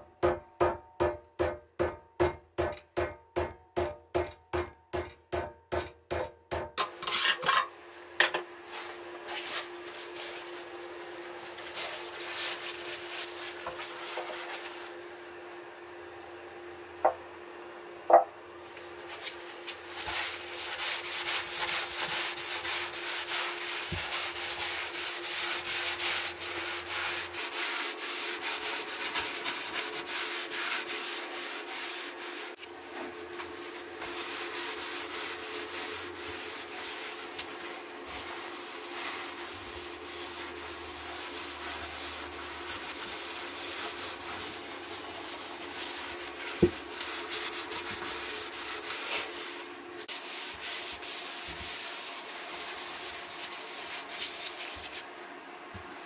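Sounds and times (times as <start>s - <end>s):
cloth rubbing on wooden handle: 18.9s - 55.0s.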